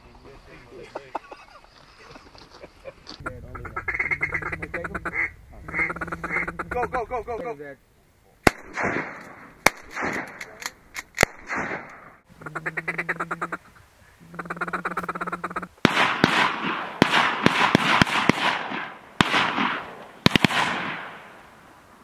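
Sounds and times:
flock of ducks and geese calling: 0:03.1 - 0:06.9
duck quacking: 0:03.2 - 0:07.0, 0:12.4 - 0:13.7, 0:14.3 - 0:15.7
sharp cracks: 0:08.4 - 0:12.3, 0:15.8 - 0:21.6.

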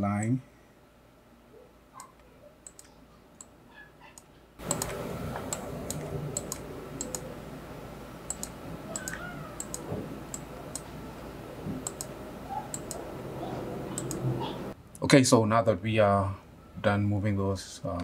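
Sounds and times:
computer mouse clicking: 0:02.0 - 0:03.5, 0:04.2 - 0:07.3, 0:08.3 - 0:10.9, 0:11.8 - 0:13.0, 0:14.0 - 0:14.2
steady background hiss: 0:04.6 - 0:18.0.

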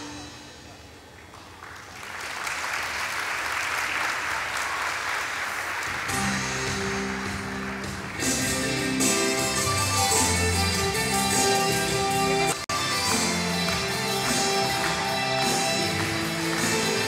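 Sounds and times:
music playing: 0:00.0 - 0:01.0, 0:05.9 - 0:17.0
audience clapping: 0:01.1 - 0:09.6, 0:12.5 - 0:17.0.

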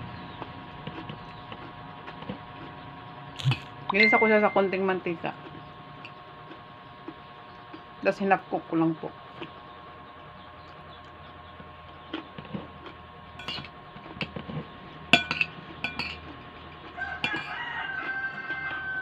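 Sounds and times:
cutlery scraping ceramic bowl: 0:13.4 - 0:14.4, 0:15.2 - 0:16.4, 0:17.2 - 0:17.6.

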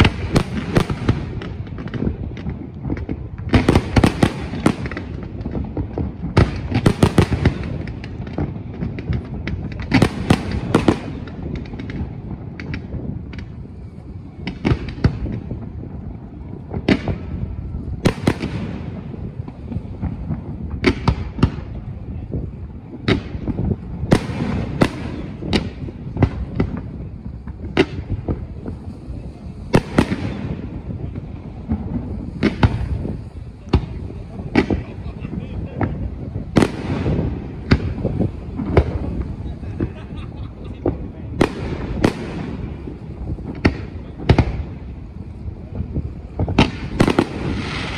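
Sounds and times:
firework shells bursting: 0:22.4 - 0:47.9.

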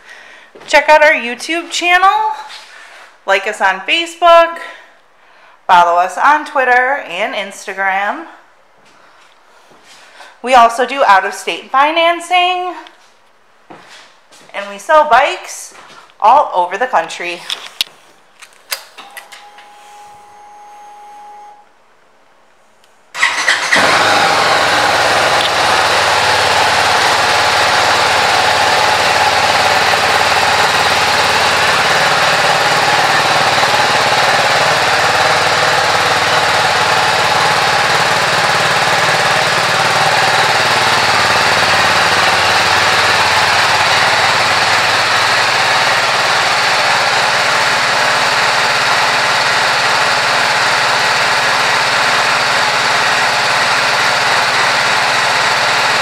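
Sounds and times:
motorcycle engine idling: 0:23.2 - 0:56.0.

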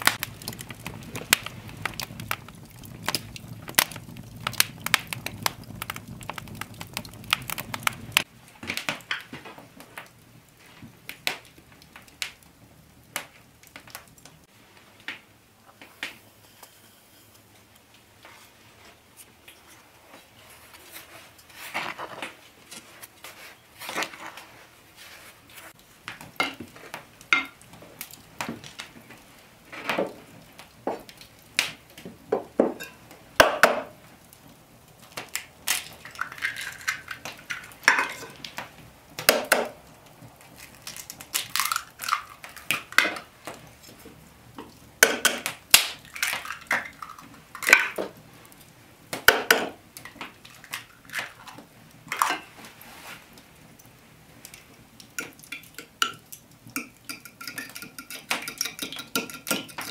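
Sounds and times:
eggs cracking: 0:00.0 - 0:09.3, 0:35.1 - 0:43.6, 0:44.6 - 0:48.1, 0:49.1 - 0:52.5, 0:54.5 - 0:59.9
spoon clinking on ceramic: 0:56.8 - 0:59.9.

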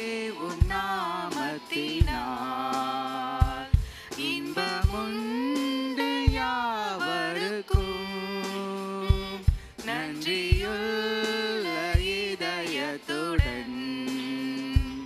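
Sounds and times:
low drum beat: 0:00.0 - 0:15.0
voices singing: 0:00.0 - 0:15.0.

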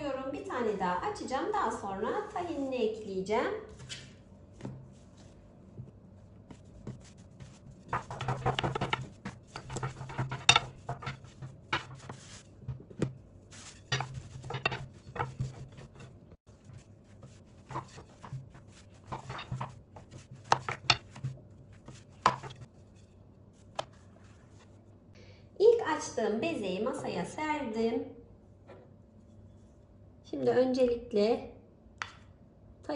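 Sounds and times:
rolling pin rolling over dough: 0:04.5 - 0:24.7.

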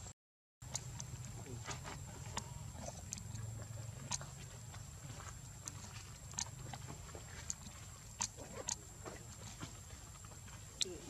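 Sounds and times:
sharp clicks and ticks: 0:00.6 - 0:08.9.

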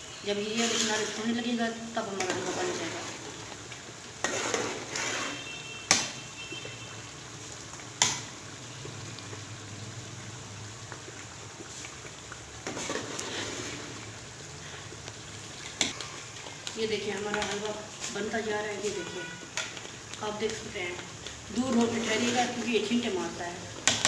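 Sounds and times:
thick food bubbling and sputtering: 0:00.1 - 0:24.0
metal spoon scraping a pot: 0:00.5 - 0:01.2, 0:04.2 - 0:05.6.

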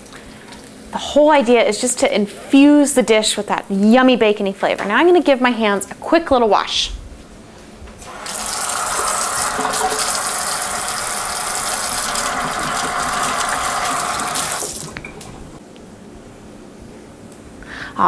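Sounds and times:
tap water running into sink: 0:08.0 - 0:15.4.

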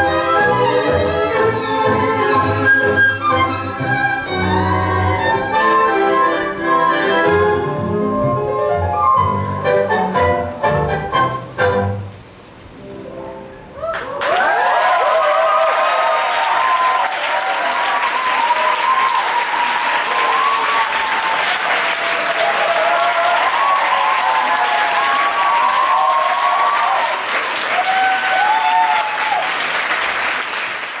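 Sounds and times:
crowd whooping and shouting: 0:13.8 - 0:29.7
audience applause: 0:13.9 - 0:31.0.

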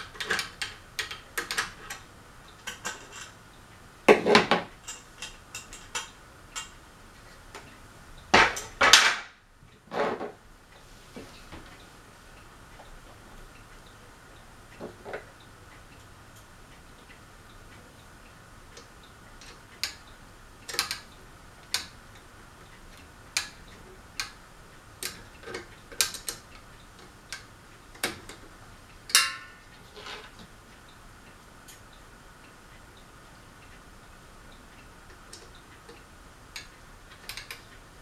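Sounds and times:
sharp clicks of handling fan switch housing: 0:18.8 - 0:22.3, 0:23.0 - 0:24.4.

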